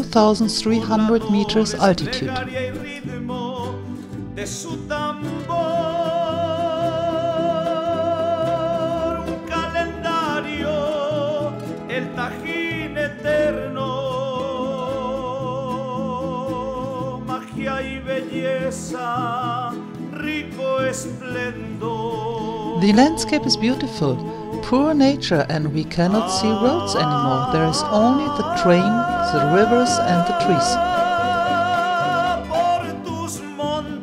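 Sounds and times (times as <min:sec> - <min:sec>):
held melody notes with vibrato: 0:22.7 - 0:32.8
pulsing bass line: 0:22.8 - 0:32.5.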